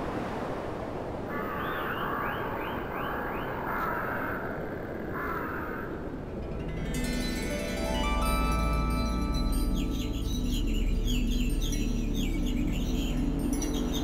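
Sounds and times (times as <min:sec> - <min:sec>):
low windy rumble: 0:00.0 - 0:14.0
crows cawing: 0:01.3 - 0:06.2.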